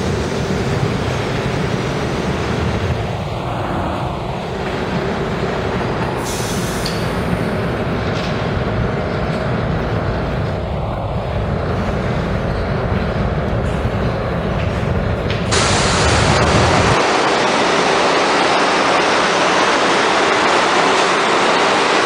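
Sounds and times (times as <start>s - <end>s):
subway train wheels rumbling: 0.0s - 22.0s.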